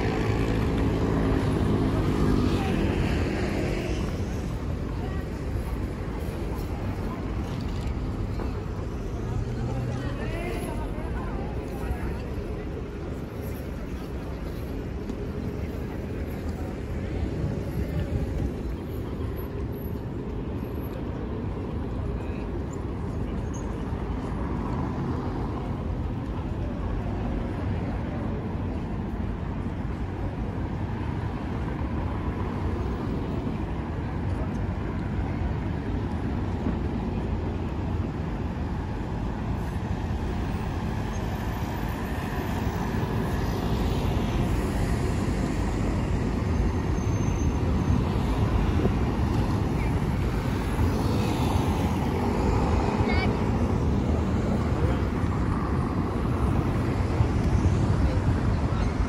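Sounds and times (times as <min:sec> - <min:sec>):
cars and buses driving past: 0:00.0 - 0:59.0.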